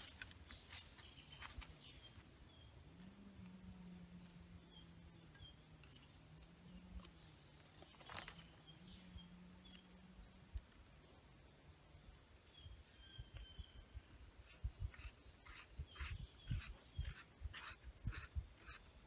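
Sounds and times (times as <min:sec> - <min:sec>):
dry leaves and twigs rustling: 0:00.0 - 0:03.8, 0:05.8 - 0:08.7
small bird chirping: 0:00.4 - 0:19.0.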